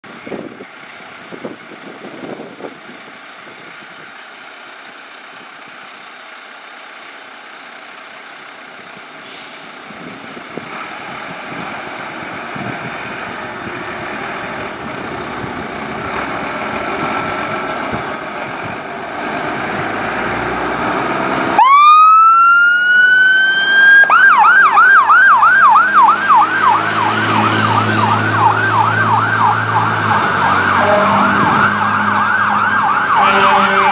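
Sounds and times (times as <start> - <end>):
fire truck engines running: 0.0 - 33.9
fire engine siren wailing and yelping: 19.6 - 33.9.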